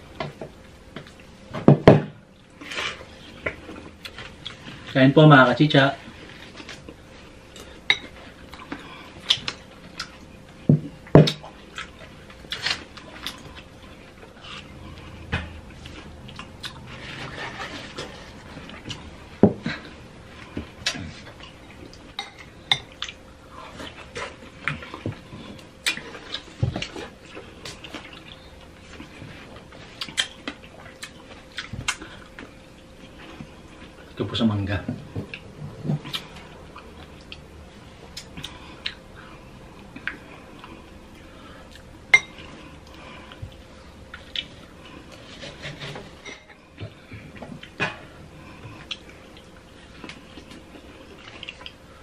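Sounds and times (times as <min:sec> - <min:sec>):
close-up chewing of juicy fruit: 0:11.3 - 0:22.2, 0:22.9 - 0:34.2, 0:35.0 - 0:45.4, 0:46.6 - 0:52.0.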